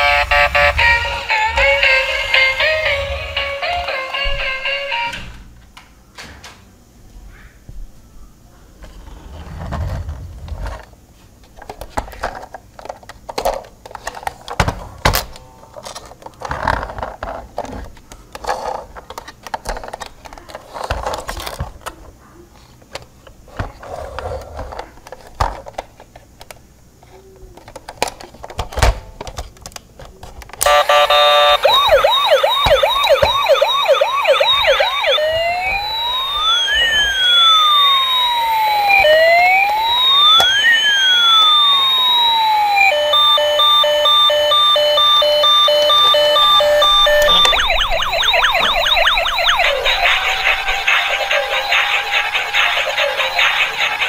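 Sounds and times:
toy electronic siren: 0.0s - 5.3s, 30.6s - 54.0s
plastic toy clicks and knocks: 11.6s - 22.0s.

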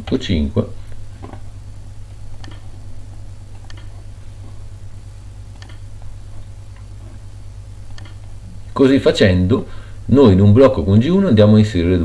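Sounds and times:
steady low hum: 0.0s - 12.0s
computer mouse clicks: 2.4s - 2.7s, 3.5s - 4.0s, 5.5s - 6.1s, 7.8s - 8.4s.

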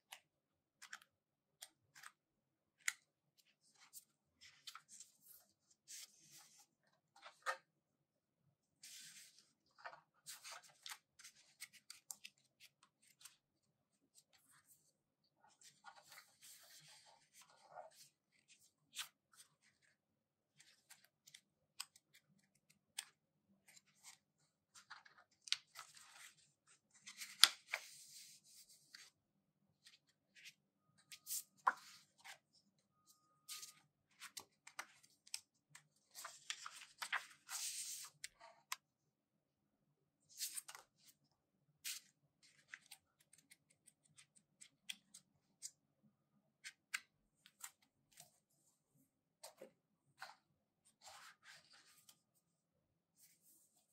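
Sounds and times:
book pages turning: 0.8s - 7.7s, 8.8s - 13.5s, 15.5s - 29.1s, 29.8s - 32.6s, 33.2s - 38.8s, 40.4s - 41.2s, 41.8s - 45.8s, 49.4s - 52.3s.

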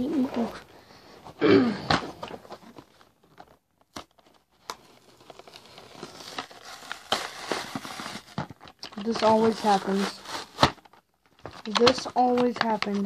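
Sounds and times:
packaging crinkling and tearing: 1.9s - 13.0s
packaging clicks: 6.2s - 13.0s.

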